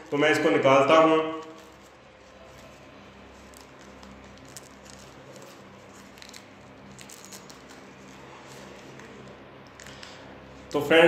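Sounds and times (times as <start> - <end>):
low steady hum: 0.0 - 11.0
packaging rustling and clicks: 1.4 - 10.2.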